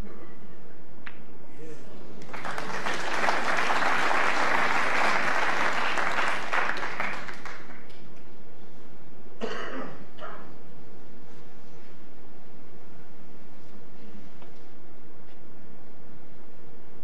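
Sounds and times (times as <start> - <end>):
audience applauding: 2.2 - 8.0
person coughing: 9.4 - 10.5.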